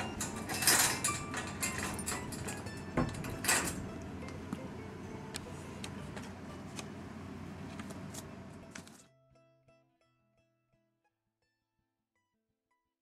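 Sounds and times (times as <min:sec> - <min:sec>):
pet cage door rattling: 0:00.0 - 0:03.9
quiet plucked-string music: 0:00.0 - 0:12.8.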